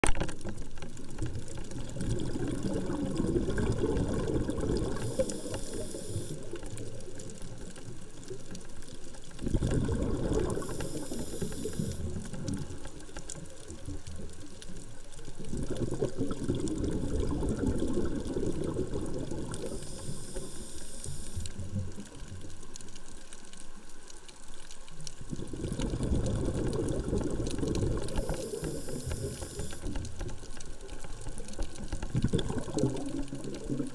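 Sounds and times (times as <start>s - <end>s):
diver breathing through regulator: 4.8s - 6.5s, 10.4s - 12.1s, 19.6s - 21.4s, 28.0s - 30.0s.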